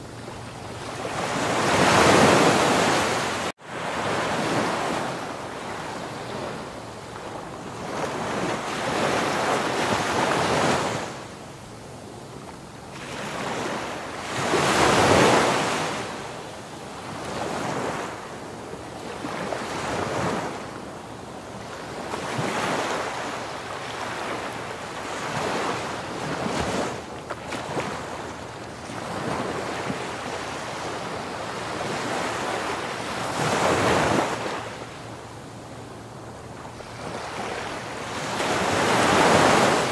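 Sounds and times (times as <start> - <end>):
waves washing in: 0.0 - 11.3, 21.4 - 39.9.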